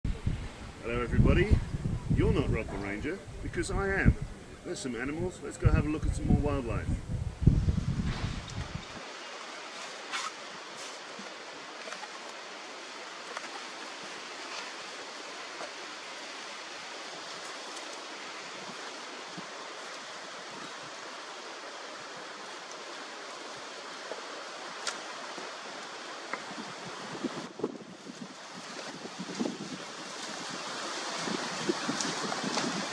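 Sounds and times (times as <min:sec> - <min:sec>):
wind hissing: 0:00.1 - 0:11.5.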